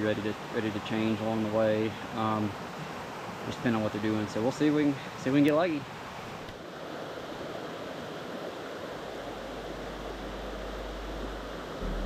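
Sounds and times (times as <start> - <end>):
stream rushing over rocks: 0.0 - 12.0
low rumble: 9.7 - 12.0.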